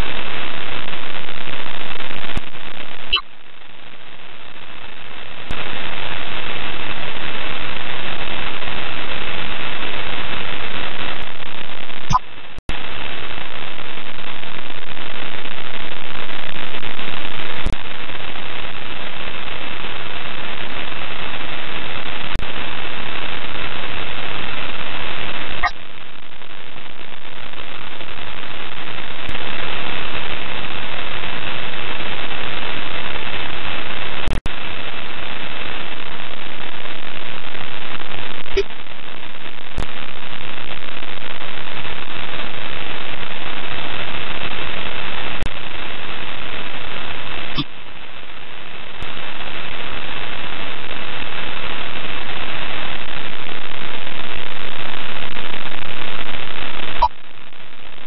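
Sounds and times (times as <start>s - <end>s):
radio static hiss: 0.0s - 58.0s.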